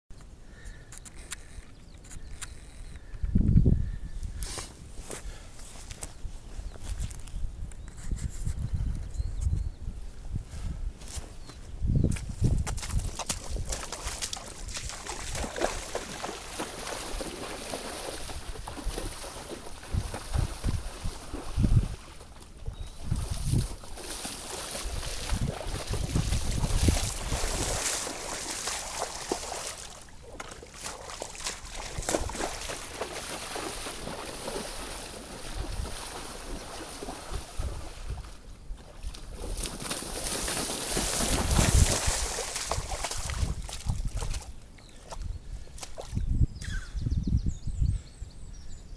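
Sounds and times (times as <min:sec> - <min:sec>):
wind rumbling on microphone: 0:01.1 - 0:48.9
waders splashing through water: 0:12.8 - 0:45.2.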